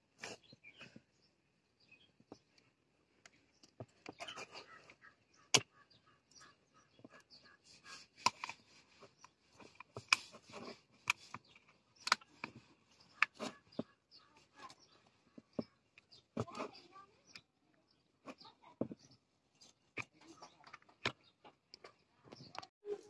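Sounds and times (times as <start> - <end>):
screwdriver scraping plastic: 7.1 - 15.6.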